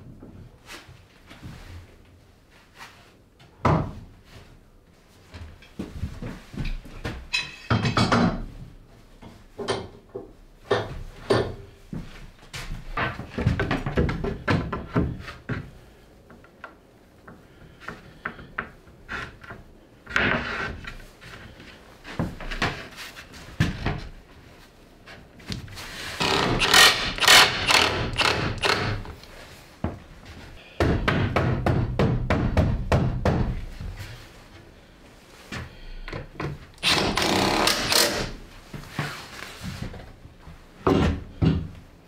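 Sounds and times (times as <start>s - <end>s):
wooden boards knocking and clattering: 6.6s - 8.5s, 12.9s - 15.7s
cordless drill running: 26.2s - 29.0s, 36.8s - 38.3s.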